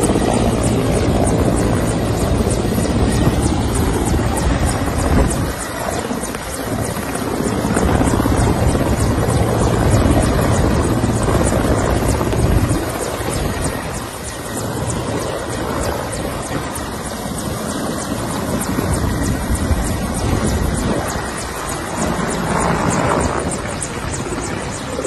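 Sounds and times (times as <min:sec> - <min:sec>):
helicopter engine noise: 0:00.0 - 0:25.0
helicopter rotor chopping: 0:00.0 - 0:25.0.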